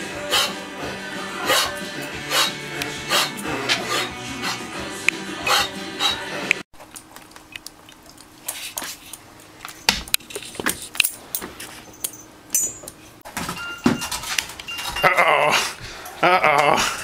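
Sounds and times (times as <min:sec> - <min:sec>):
light clicks and clinks: 0:10.7 - 0:13.1.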